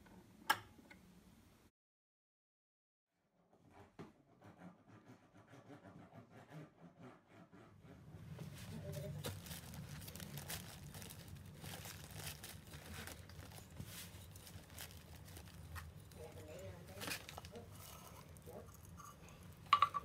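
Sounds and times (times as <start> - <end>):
low steady hum: 7.8 - 20.0
plastic liner crinkling: 8.5 - 19.6.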